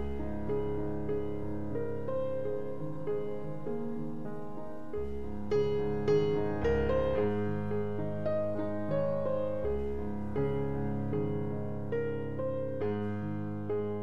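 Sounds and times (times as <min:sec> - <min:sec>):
piano music: 0:00.0 - 0:14.0.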